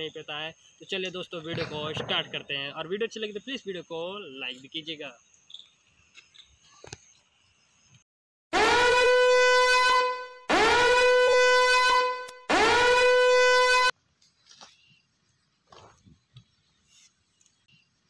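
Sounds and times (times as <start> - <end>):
insects chirping: 0.0 - 8.0
buzzy warning horn blasts: 8.5 - 13.9.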